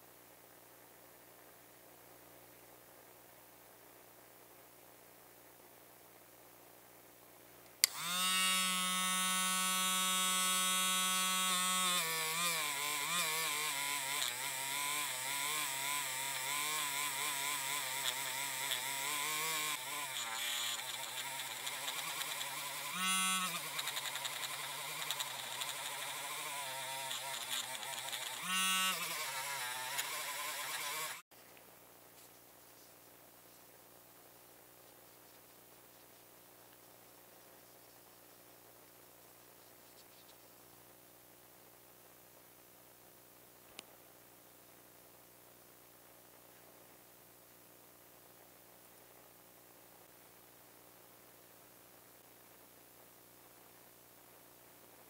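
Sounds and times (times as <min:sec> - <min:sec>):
rotary tool polishing metal: 0:07.8 - 0:31.2.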